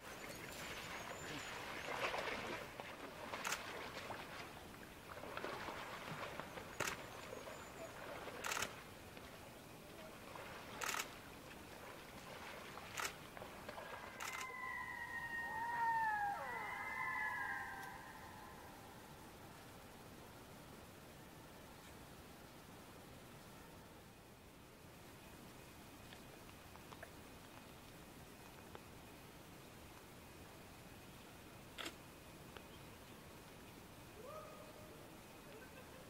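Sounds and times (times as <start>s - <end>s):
ducks splashing and fighting: 0.0s - 9.4s, 10.0s - 15.0s
loons wailing calls: 14.2s - 18.8s.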